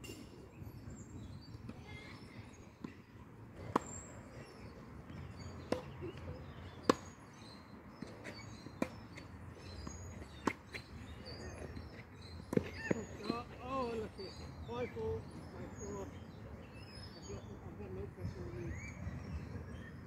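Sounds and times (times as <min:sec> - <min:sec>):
birds chirping faintly: 0:00.5 - 0:20.0
tennis ball struck by rackets: 0:05.6 - 0:06.0.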